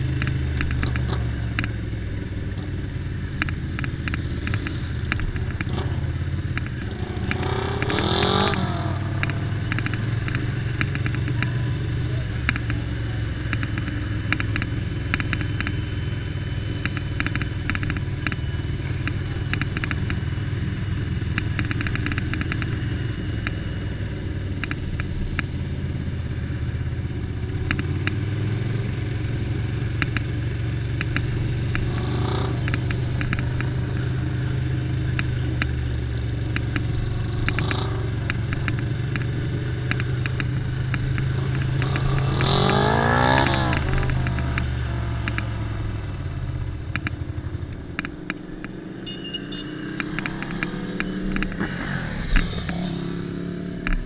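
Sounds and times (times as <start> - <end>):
motorcycle engine running: 0.0 - 54.0
engine revving up: 6.8 - 13.7, 36.5 - 45.9, 47.8 - 54.0.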